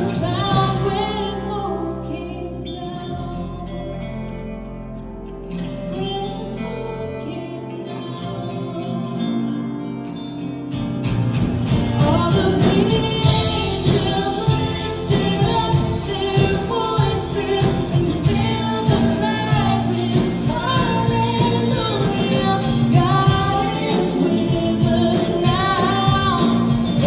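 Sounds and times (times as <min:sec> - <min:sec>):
woman singing lead: 0:00.0 - 0:04.5, 0:05.5 - 0:10.4, 0:11.7 - 0:27.0
keyboard: 0:00.0 - 0:27.0
steady percussion: 0:11.1 - 0:27.0.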